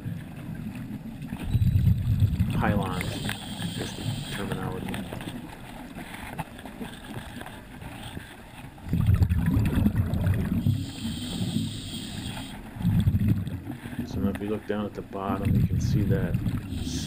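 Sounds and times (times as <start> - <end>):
exhaled bubbles rumbling: 0.0 - 5.6, 8.8 - 17.0
soft breathing hiss: 2.9 - 4.6, 10.6 - 12.7.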